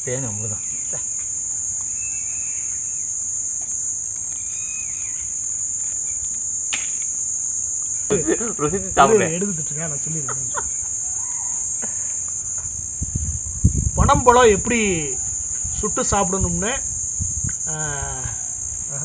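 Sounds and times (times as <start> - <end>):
insects chirring: 0.0 - 19.0
man's voice: 8.1 - 10.6, 14.0 - 15.2.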